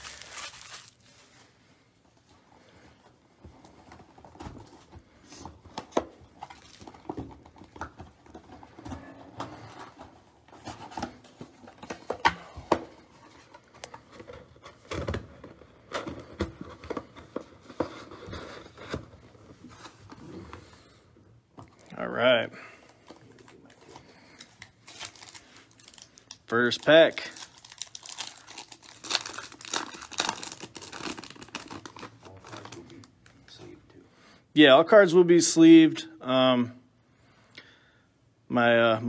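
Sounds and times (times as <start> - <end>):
plastic wrap tearing and crinkling: 0.0 - 1.4, 24.4 - 33.3.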